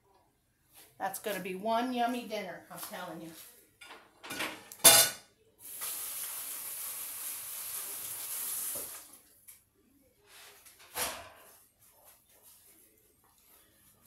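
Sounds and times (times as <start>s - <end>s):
water running from faucet: 5.6s - 9.2s.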